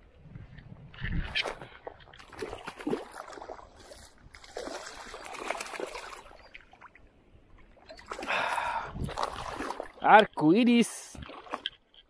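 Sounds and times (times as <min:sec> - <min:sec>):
water splashing and trickling: 0:00.3 - 0:12.0.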